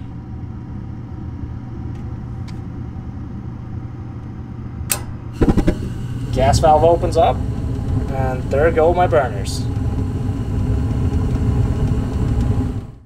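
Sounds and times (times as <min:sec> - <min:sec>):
furnace motor humming: 0:00.0 - 0:13.0
gas valve click: 0:04.9 - 0:06.3
burners igniting with rushing noise: 0:05.3 - 0:13.0.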